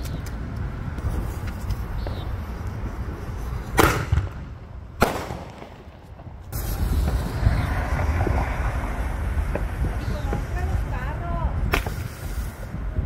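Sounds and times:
firework bangs: 0:03.7 - 0:12.7
small firework pops: 0:03.8 - 0:04.4, 0:05.0 - 0:07.3, 0:11.6 - 0:12.3
fireworks crackling hiss: 0:06.4 - 0:13.0.

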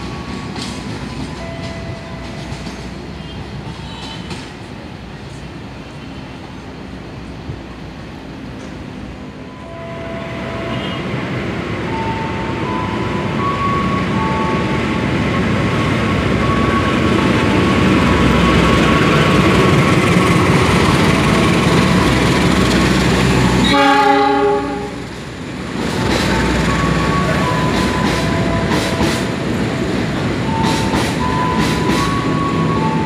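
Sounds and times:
locomotive and coaches rolling: 0:00.0 - 0:33.0
train horn blast: 0:09.6 - 0:11.1, 0:23.6 - 0:25.1.

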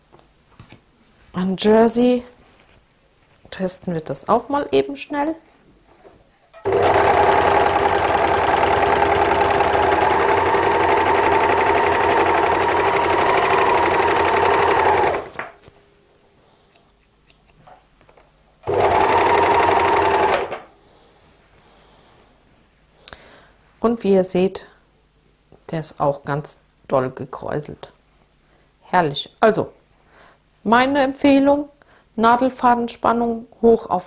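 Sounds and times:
overlocker running: 0:06.6 - 0:15.5, 0:18.6 - 0:20.6.

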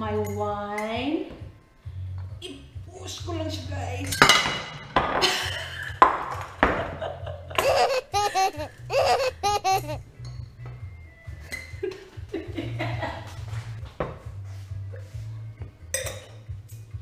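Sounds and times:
woman laughing: 0:05.2 - 0:06.0, 0:06.7 - 0:10.0, 0:11.8 - 0:13.3.

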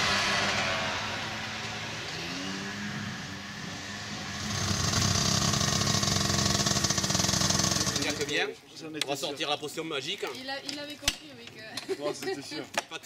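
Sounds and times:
buggy engine revving: 0:00.0 - 0:08.4.

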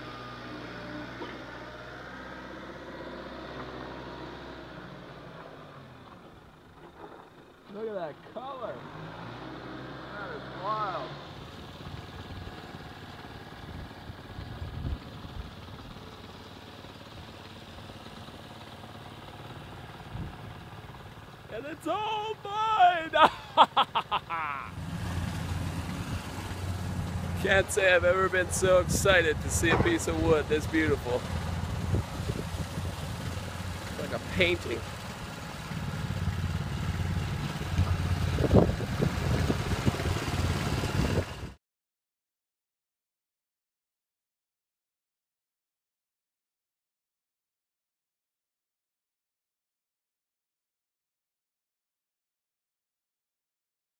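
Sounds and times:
engine idling: 0:00.0 - 0:41.5
low thuds: 0:28.9 - 0:30.5
knocks and clatters: 0:29.6 - 0:30.2.

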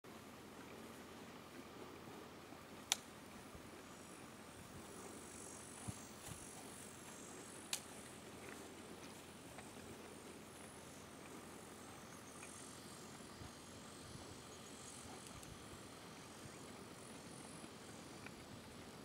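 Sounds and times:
sharp clicks: 0:02.8 - 0:03.1, 0:07.7 - 0:08.6, 0:15.2 - 0:15.6
thin high insect buzz: 0:03.6 - 0:19.0.

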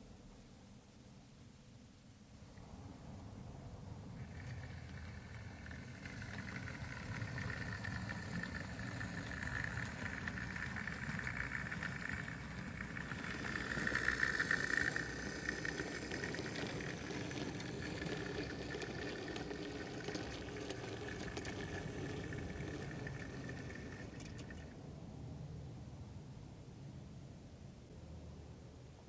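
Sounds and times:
model train motor whirring: 0:03.7 - 0:24.8.

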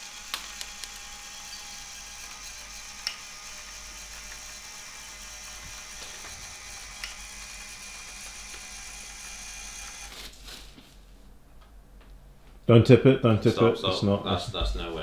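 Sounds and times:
small electric motor running: 0:00.0 - 0:10.3.

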